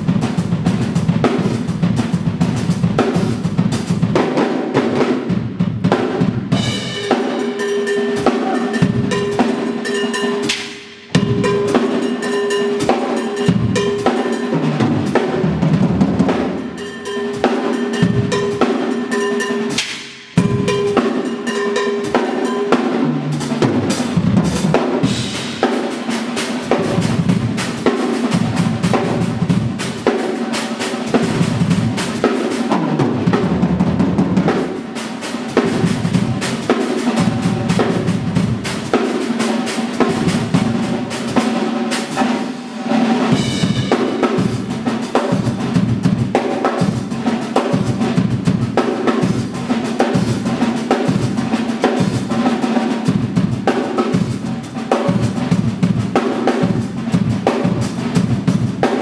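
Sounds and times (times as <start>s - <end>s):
drum kit playing fast: 0.0s - 59.0s
cymbal crashes: 6.5s - 15.3s, 34.5s - 48.1s.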